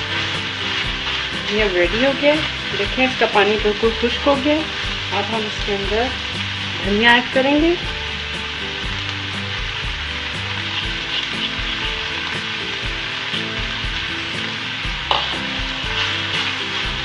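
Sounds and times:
meat sizzling in a pan: 0.0 - 17.0
spatula stirring: 10.6 - 12.6.

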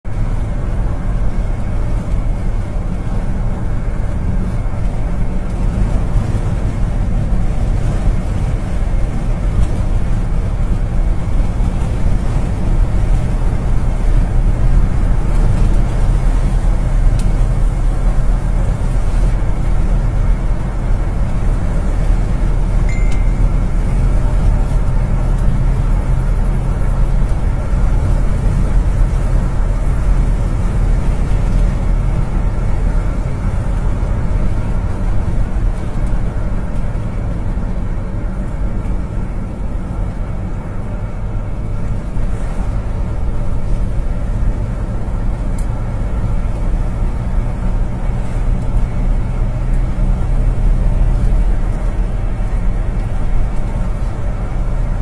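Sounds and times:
car road and engine noise: 0.0 - 55.0
short high tone: 22.9 - 23.8.

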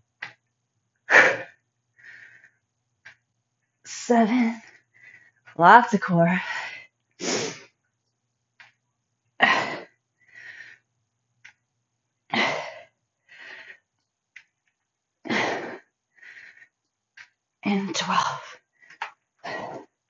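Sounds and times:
woman breathing forcefully: 1.1 - 2.6, 4.6 - 5.6, 9.4 - 10.9, 12.3 - 13.9, 15.3 - 16.8, 18.6 - 19.9.

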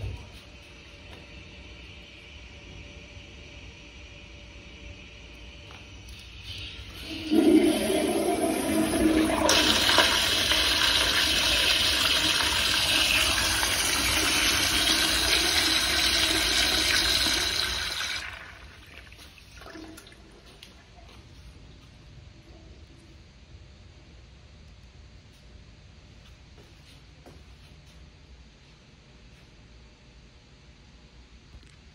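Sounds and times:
toilet flushing: 6.2 - 20.8.

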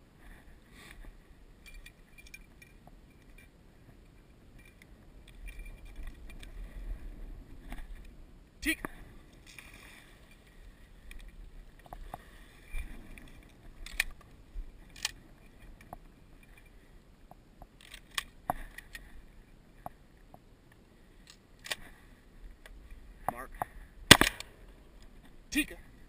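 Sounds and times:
clicks and knocks of gun handling: 0.9 - 3.5, 10.3 - 12.2, 13.1 - 16.7, 17.6 - 19.1, 21.2 - 22.0, 22.6 - 25.4.

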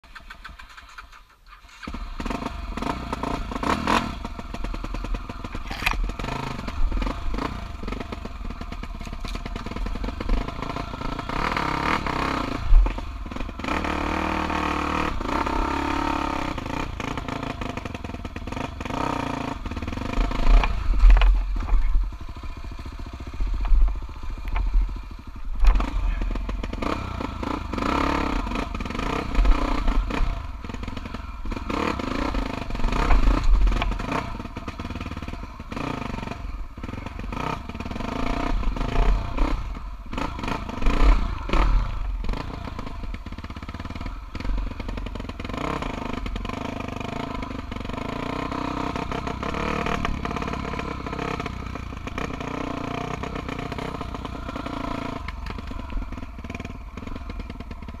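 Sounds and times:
motorcycle engine revving: 0.1 - 58.0.

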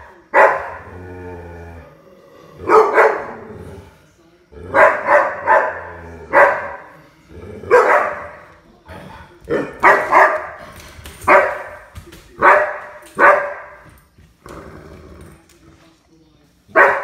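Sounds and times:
dog barking: 0.3 - 0.8, 2.7 - 3.5, 4.7 - 6.9, 7.7 - 8.4, 9.5 - 10.6, 11.3 - 11.8, 12.4 - 13.8, 16.7 - 17.0.

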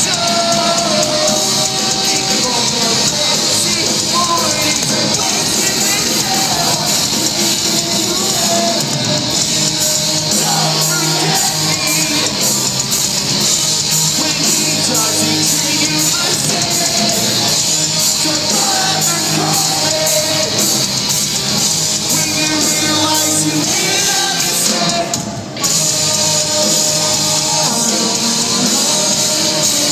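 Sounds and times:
drums: 0.0 - 29.9
electric guitars: 0.0 - 29.9
lead singer vocals: 0.0 - 29.9.

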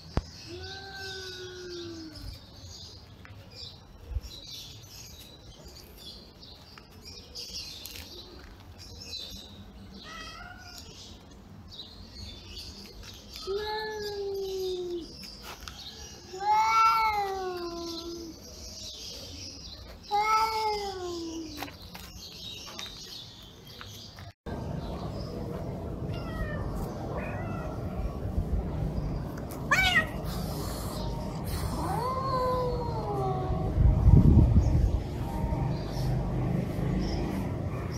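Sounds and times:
cats meowing: 10.0 - 11.0, 16.3 - 18.3, 26.0 - 28.3, 29.6 - 33.8.

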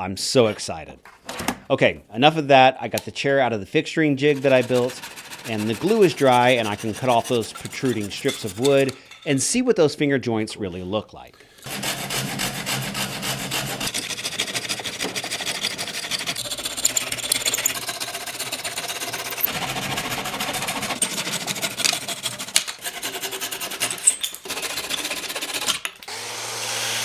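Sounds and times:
hand saw cutting wood: 4.2 - 9.0, 11.6 - 27.0.

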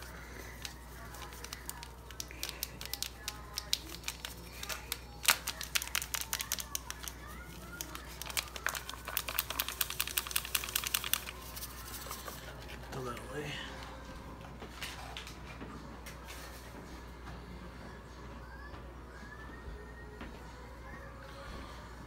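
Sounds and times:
packet crinkling and tearing: 0.0 - 12.8.

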